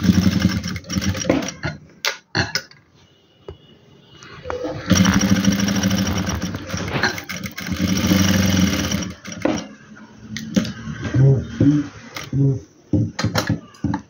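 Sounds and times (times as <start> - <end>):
electric sewing machine running: 0.0 - 1.4, 4.9 - 9.5.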